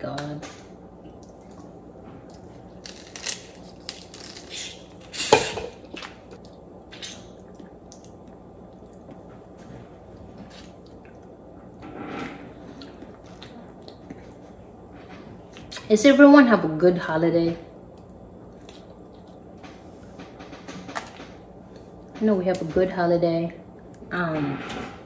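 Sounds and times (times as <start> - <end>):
crawfish shells cracking: 2.7 - 5.3.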